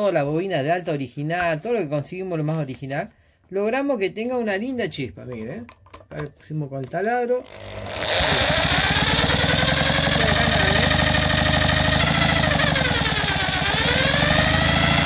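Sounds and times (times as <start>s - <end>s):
electric drill whining: 7.4s - 15.0s.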